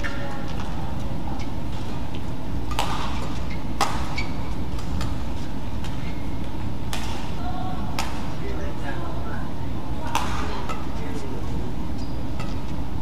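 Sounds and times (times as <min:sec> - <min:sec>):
arena hum: 0:00.0 - 0:13.0
racket striking shuttlecock: 0:02.7 - 0:05.2, 0:05.8 - 0:08.4, 0:10.0 - 0:11.2, 0:12.0 - 0:12.8.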